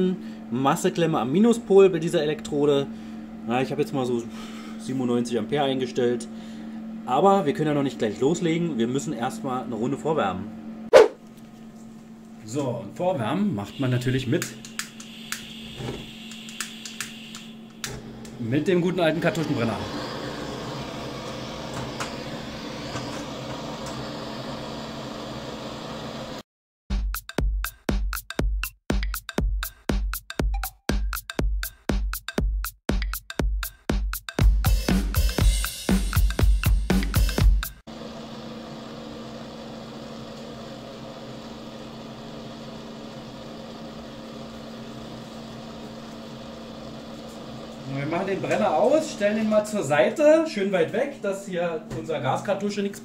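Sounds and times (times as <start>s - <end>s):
blowtorch burning: 17.9s - 26.4s
gas torch hissing: 17.9s - 26.4s.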